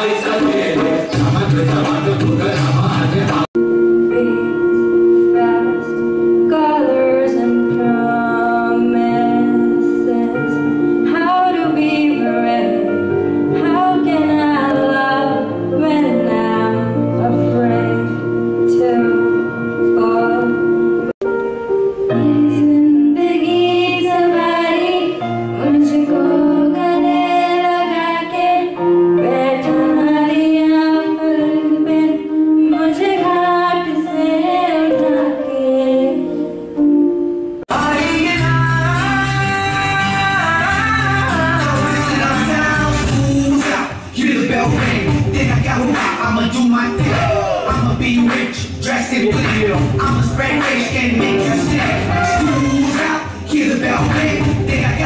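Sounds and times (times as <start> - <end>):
held accompaniment notes: 0.0 - 55.0
girl singing into a microphone: 4.0 - 20.8, 22.1 - 36.9.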